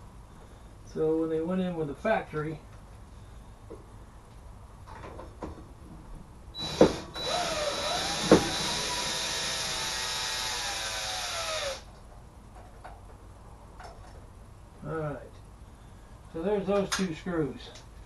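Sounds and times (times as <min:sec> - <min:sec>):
cordless drill whining: 0:06.6 - 0:11.9.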